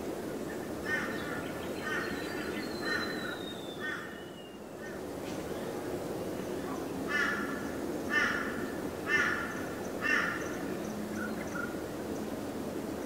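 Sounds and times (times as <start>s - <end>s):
crow calling: 0.8s - 4.4s, 7.1s - 10.6s.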